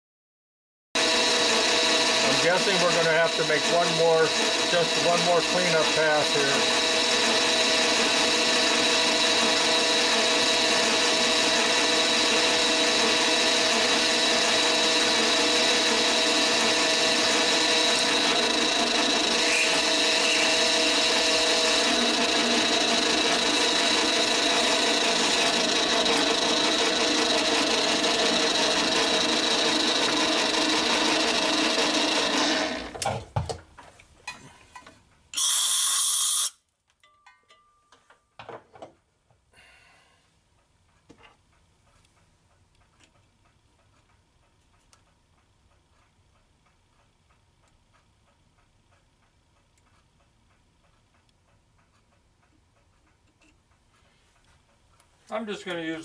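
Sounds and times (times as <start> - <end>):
lathe motor whine: 1.0 - 33.0.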